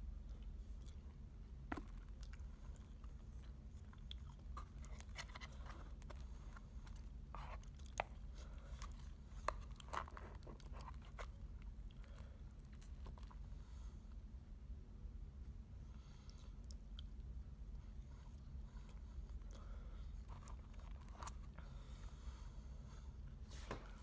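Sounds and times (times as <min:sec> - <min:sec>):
low steady hum: 0:00.0 - 0:24.0
person chewing crunchy food: 0:00.2 - 0:13.6, 0:18.4 - 0:21.8.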